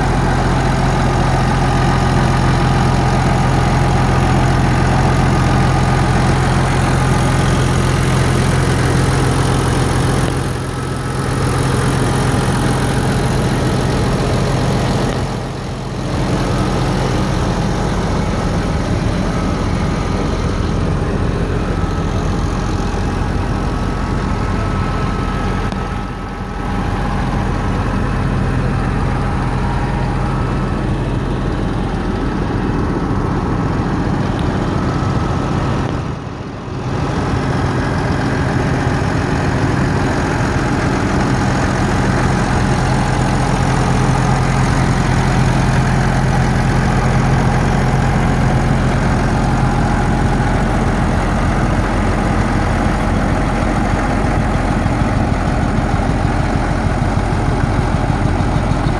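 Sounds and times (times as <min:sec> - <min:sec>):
tractor diesel engine idling: 0:00.0 - 0:58.9.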